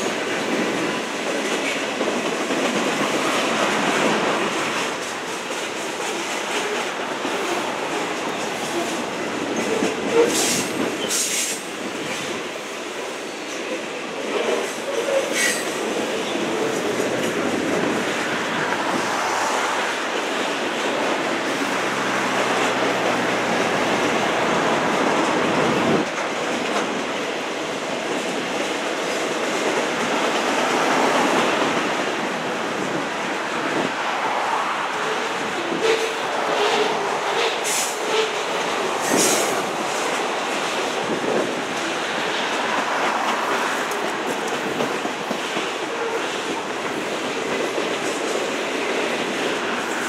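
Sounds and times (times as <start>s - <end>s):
freight train wheels on rails: 0.0s - 50.0s
train wheels squealing: 14.9s - 16.4s.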